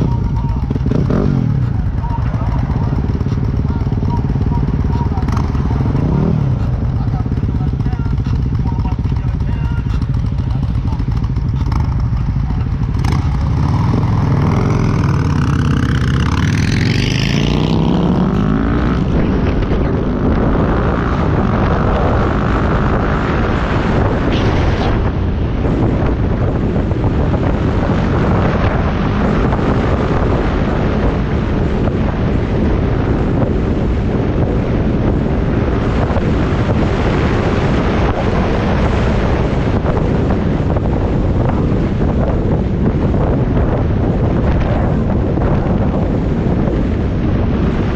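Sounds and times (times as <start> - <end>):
wind rushing over microphone: 0.0 - 47.9
motorcycle engine pulling away: 9.9 - 25.2.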